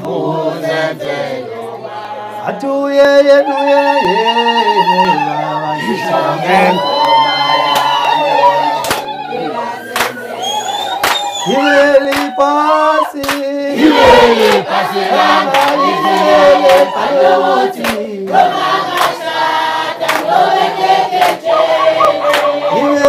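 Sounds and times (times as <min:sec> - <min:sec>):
group singing in chorus: 0:00.0 - 0:23.0
man singing into a microphone: 0:02.4 - 0:07.4, 0:11.4 - 0:18.3, 0:22.6 - 0:23.0
hand clapping: 0:08.8 - 0:09.1, 0:10.0 - 0:10.2, 0:10.9 - 0:12.5, 0:13.2 - 0:13.5, 0:14.4 - 0:14.7, 0:15.5 - 0:16.9, 0:17.8 - 0:18.1, 0:18.9 - 0:19.2, 0:20.0 - 0:20.4, 0:21.1 - 0:23.0.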